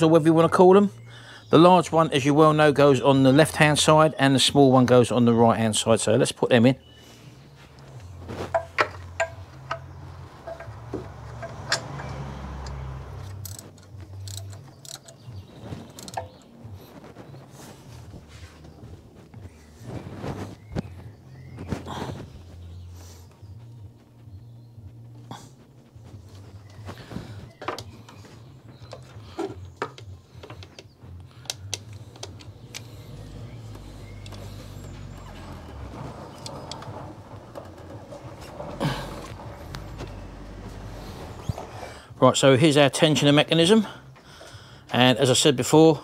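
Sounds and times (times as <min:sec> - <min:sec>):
metal clicks and taps: 0:08.5 - 0:10.8, 0:11.4 - 0:15.2, 0:15.9 - 0:16.5, 0:29.8 - 0:32.9.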